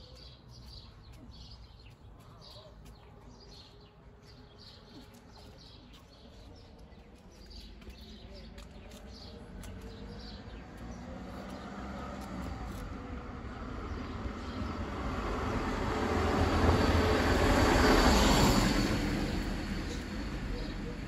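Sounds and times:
passing vehicle rumbling: 9.4 - 21.0.

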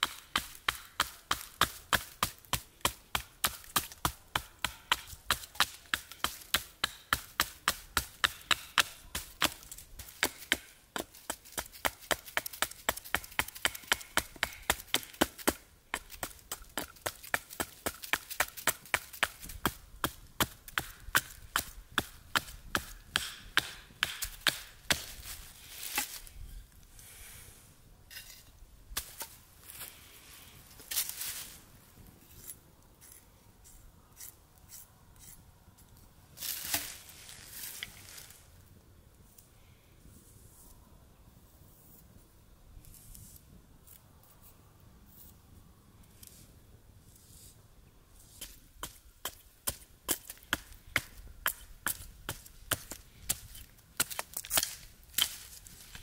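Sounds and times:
hatchet chopping wood: 0.0 - 25.2, 48.4 - 56.0.

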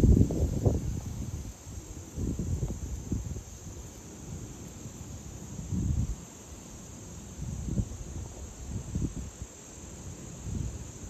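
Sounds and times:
wind buffeting microphone: 0.0 - 4.6, 5.5 - 6.2, 7.3 - 9.5
insects chirring: 0.0 - 11.0.

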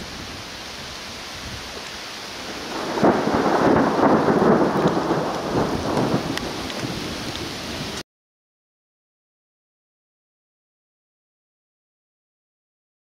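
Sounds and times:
steady rain: 0.0 - 8.0
thunder rumbling and crackling: 2.4 - 8.0.

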